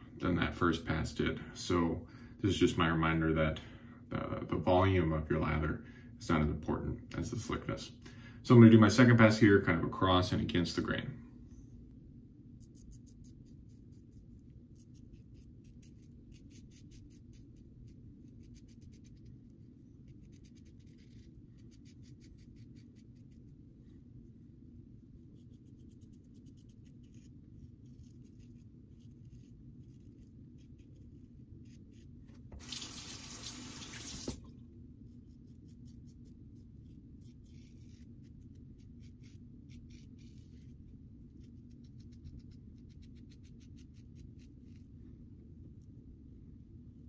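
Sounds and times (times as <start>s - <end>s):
steady low hum: 0.0s - 32.7s, 34.0s - 47.0s
razor scraping stubble: 12.6s - 19.4s, 20.0s - 23.5s, 35.2s - 44.9s
tap running water: 32.5s - 34.5s.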